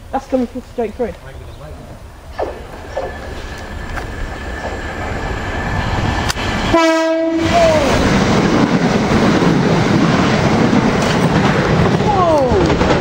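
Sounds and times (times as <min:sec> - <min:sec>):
train wheels on rails: 0:02.5 - 0:13.0
train horn blast: 0:06.7 - 0:07.6.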